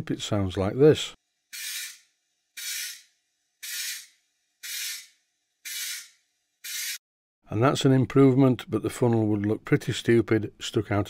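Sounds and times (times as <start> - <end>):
short hissing air blasts: 1.6 - 7.0.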